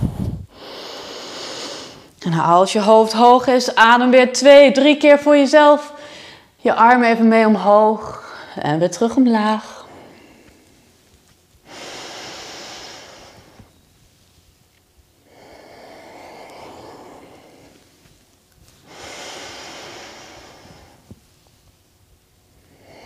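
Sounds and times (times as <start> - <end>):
woman breathing deeply: 0.0 - 2.2, 6.0 - 6.6, 9.7 - 11.0, 11.6 - 13.8, 15.1 - 23.0.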